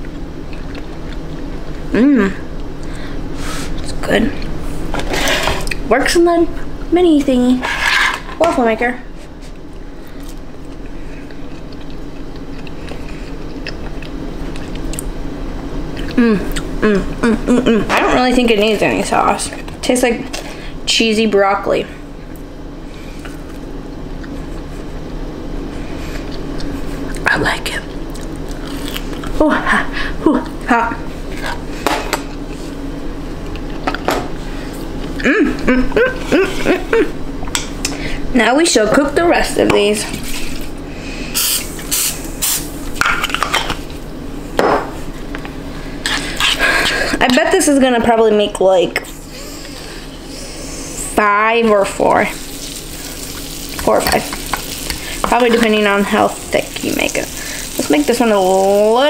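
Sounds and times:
person chewing: 0:00.0 - 0:01.9, 0:09.5 - 0:15.2, 0:15.9 - 0:17.3, 0:23.2 - 0:24.6, 0:28.0 - 0:29.4
steady low hum: 0:00.0 - 0:59.0.

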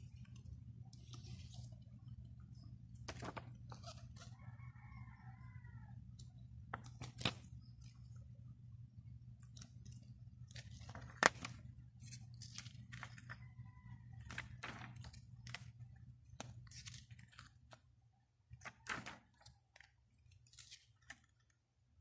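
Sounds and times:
paper rustling: 0:00.1 - 0:02.0, 0:03.0 - 0:04.3, 0:14.2 - 0:17.8, 0:18.6 - 0:21.6.

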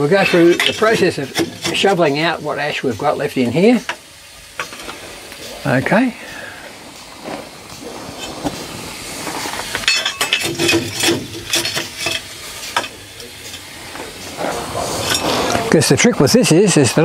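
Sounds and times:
steady hiss: 0:00.0 - 0:17.0
shovel scraping metal: 0:00.1 - 0:02.0, 0:09.3 - 0:13.0, 0:14.4 - 0:15.8.

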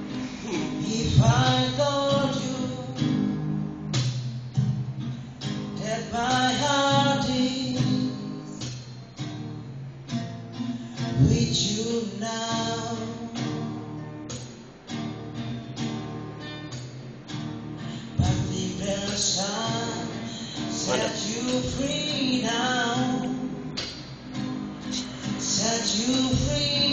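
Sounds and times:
strummed acoustic guitar: 0:00.0 - 0:26.9
man singing: 0:00.1 - 0:03.2, 0:05.8 - 0:08.5, 0:11.2 - 0:13.5, 0:18.1 - 0:23.6, 0:24.9 - 0:26.9.

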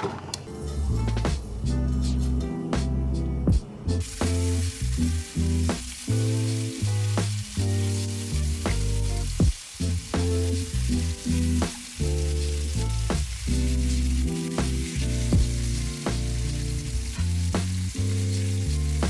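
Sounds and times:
background music with steady beat: 0:00.4 - 0:19.0
chicken sizzling in a skillet: 0:04.0 - 0:19.0.

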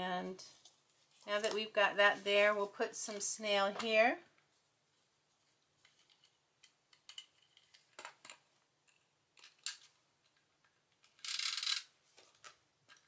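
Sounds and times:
adhesive roller clicks and scratches: 0:11.0 - 0:11.9.

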